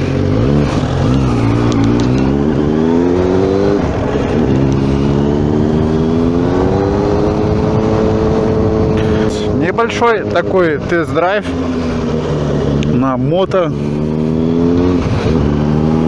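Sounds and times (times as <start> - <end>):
motorcycle engine accelerating: 0.0 - 16.0.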